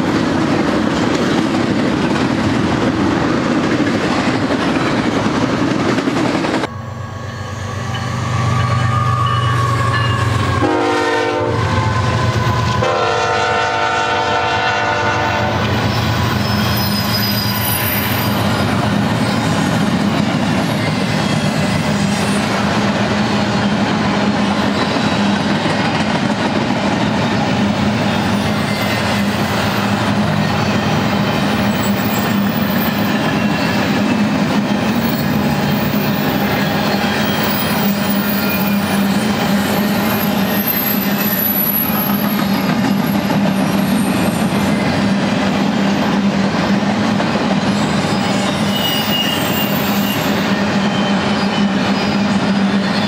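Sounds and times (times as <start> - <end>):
train wheels clattering on rails: 0.0 - 6.7, 7.9 - 53.0
locomotive horn blasts: 9.0 - 11.8, 12.7 - 15.7
faint wheel squeal: 15.8 - 18.5, 48.1 - 53.0.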